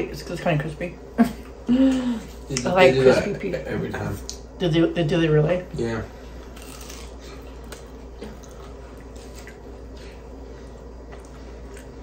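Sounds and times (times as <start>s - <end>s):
chewing crispy pizza: 6.3s - 12.0s.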